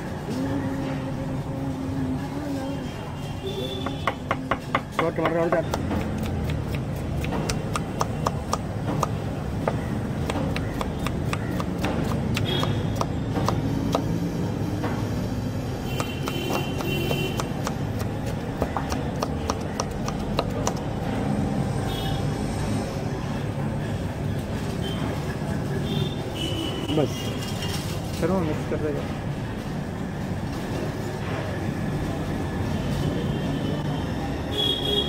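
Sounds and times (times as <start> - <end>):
street background noise: 0.0 - 35.0.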